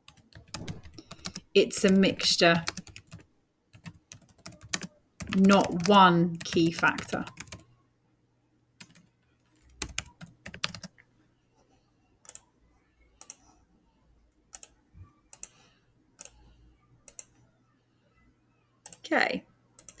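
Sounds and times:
computer keyboard typing: 0:00.0 - 0:07.7, 0:08.8 - 0:11.0, 0:12.2 - 0:12.5, 0:13.2 - 0:13.5, 0:14.5 - 0:14.7, 0:15.3 - 0:15.6, 0:17.0 - 0:17.4, 0:19.8 - 0:20.0.

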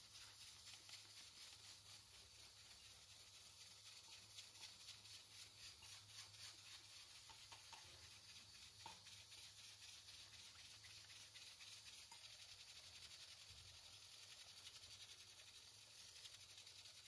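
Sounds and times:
faint ticks: 0:06.8 - 0:17.0.

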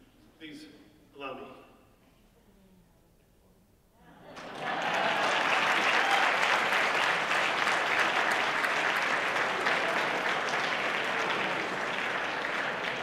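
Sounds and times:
audience applauding: 0:04.3 - 0:13.0.

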